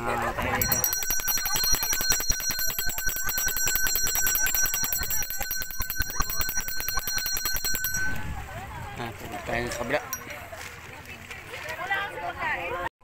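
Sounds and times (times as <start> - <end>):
bell rung rapidly: 0.6 - 8.4.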